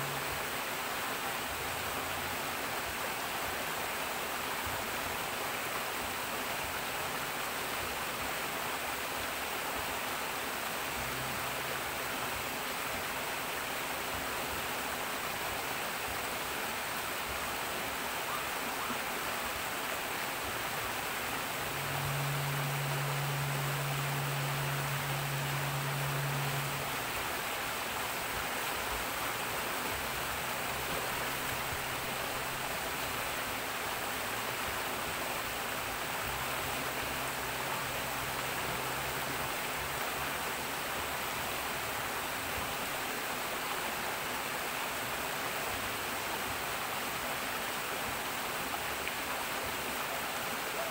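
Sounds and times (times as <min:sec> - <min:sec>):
low hum: 0:20.2 - 0:41.8.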